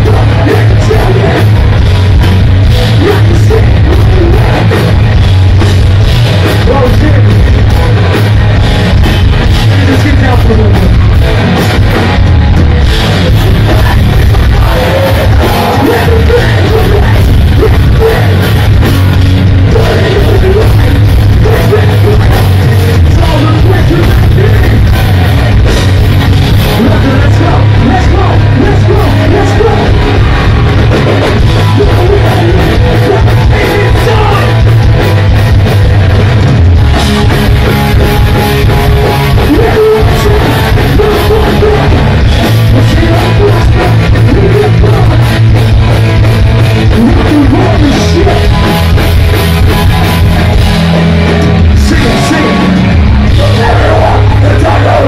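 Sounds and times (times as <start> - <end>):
bass guitar: 0.0 - 55.0
distorted electric guitars: 0.0 - 55.0
drums: 0.0 - 55.0
shouted vocals: 13.7 - 18.6, 26.8 - 34.6, 51.8 - 55.0.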